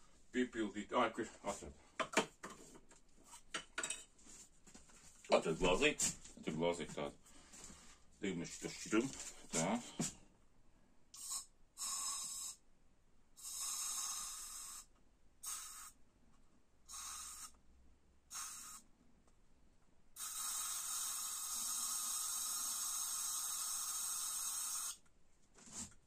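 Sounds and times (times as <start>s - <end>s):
aerosol can spraying: 11.2s - 12.6s, 13.4s - 16.0s, 16.9s - 17.5s, 18.3s - 18.8s, 20.2s - 25.0s.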